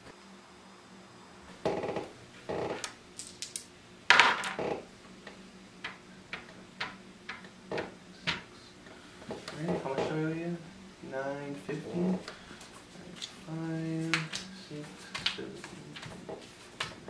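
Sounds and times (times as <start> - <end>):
game pieces clicking: 3.2 - 3.7
game pieces clattering: 3.2 - 4.6.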